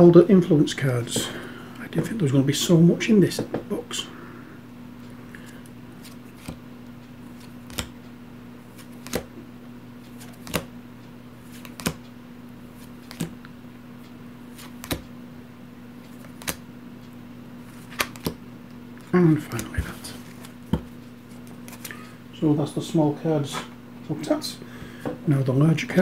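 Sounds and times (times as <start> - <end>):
low electrical hum: 0.0 - 26.0
cards snapping on table: 6.0 - 6.6, 7.4 - 8.0, 8.8 - 9.3, 10.2 - 10.7, 11.5 - 12.0, 13.1 - 13.4, 14.6 - 15.0, 16.2 - 16.6, 17.8 - 18.4.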